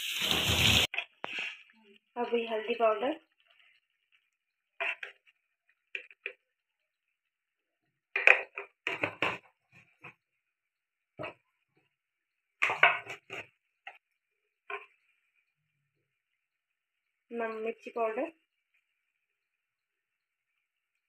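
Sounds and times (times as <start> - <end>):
thick gravy simmering and popping: 3.2 - 17.2.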